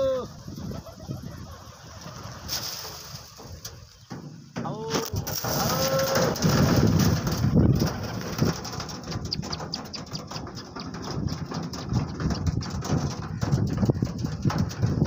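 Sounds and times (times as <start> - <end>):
pigeons pecking on plastic: 2.4 - 15.0
pigeon wings flapping: 4.9 - 15.0.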